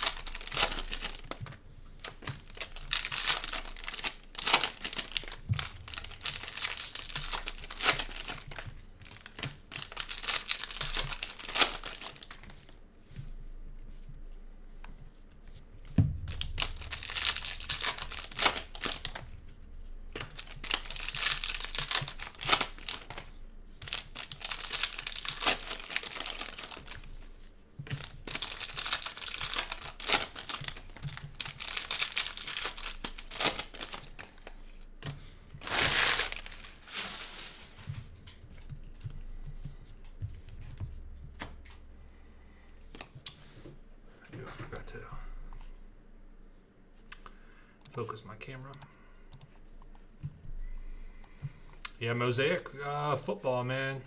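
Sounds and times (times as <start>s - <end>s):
foil wrappers crinkling and tearing: 0.0s - 12.8s, 16.3s - 19.3s, 20.1s - 35.0s, 35.6s - 37.9s
thump: 15.9s - 16.9s.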